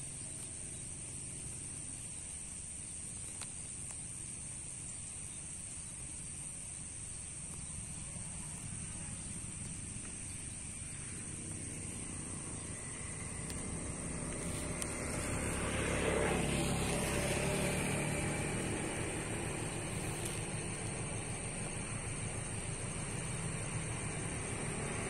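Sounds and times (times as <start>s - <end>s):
insects chirring: 0.0s - 25.0s
distant train rumble: 7.8s - 25.0s.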